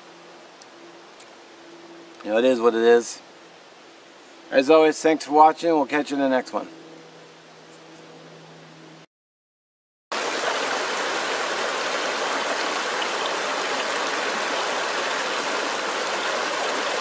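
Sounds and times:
creek water rushing over stones: 0:10.1 - 0:17.0.

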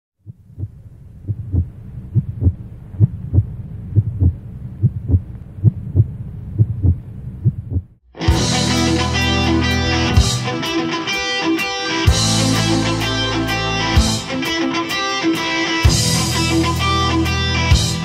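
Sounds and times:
heartbeat thumps: 0:00.2 - 0:08.0
low steady hum: 0:00.2 - 0:08.0
electric guitar rock music: 0:08.2 - 0:18.0.

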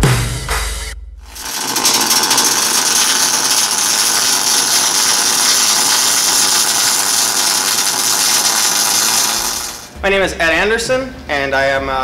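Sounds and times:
arc welding crackling: 0:01.3 - 0:10.0.

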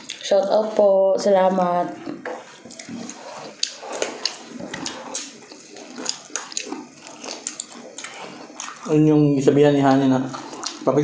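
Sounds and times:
wet chewing: 0:00.0 - 0:11.0
lip smacks: 0:02.7 - 0:08.9, 0:10.4 - 0:10.8.

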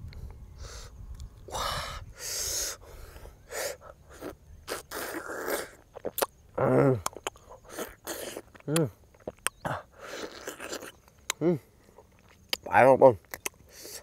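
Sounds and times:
wet sucking and slurping: 0:03.5 - 0:06.3, 0:07.0 - 0:11.0
mouth clicks: 0:03.5 - 0:14.0.

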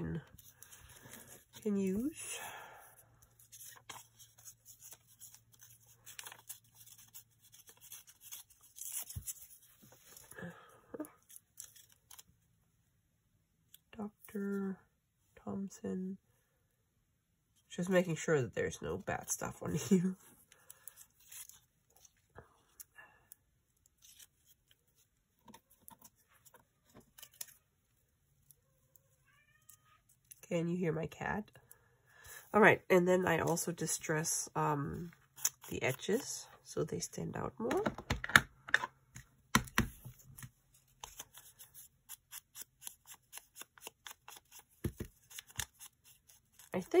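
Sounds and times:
paper rustling and crackling: 0:03.4 - 0:10.3.

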